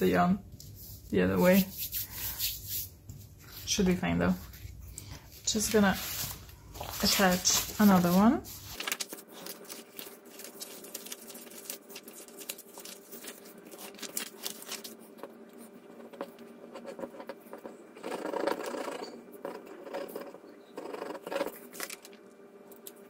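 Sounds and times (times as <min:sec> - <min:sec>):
paper sheets rustling: 0:03.4 - 0:16.3.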